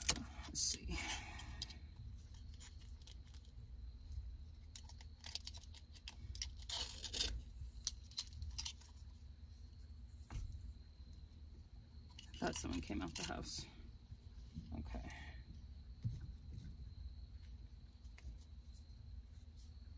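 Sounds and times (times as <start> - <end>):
velcro strap ripping: 4.7 - 9.0.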